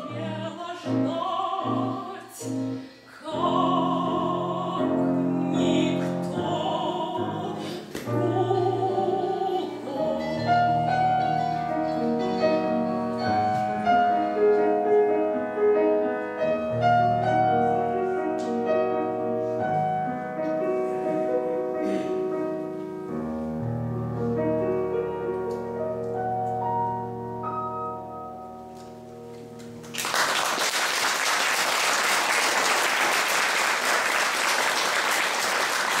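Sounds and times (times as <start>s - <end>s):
grand piano playing: 0.0s - 30.6s
audience applause: 29.8s - 36.0s.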